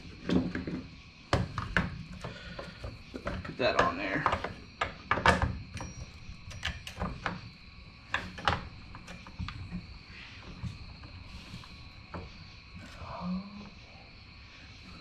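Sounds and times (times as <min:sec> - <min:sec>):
saw chain clicks and knocks: 0:01.6 - 0:09.8.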